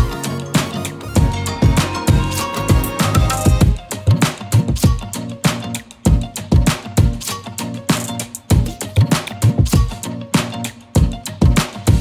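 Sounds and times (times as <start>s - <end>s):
bass line: 0.0s - 5.0s
drum beat: 0.0s - 12.0s.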